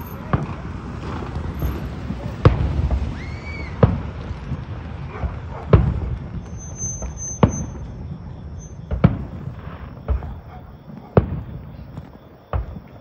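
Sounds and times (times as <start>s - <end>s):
firework whistle: 0.0s - 4.3s, 5.2s - 10.5s
firework shells bursting: 0.0s - 13.0s.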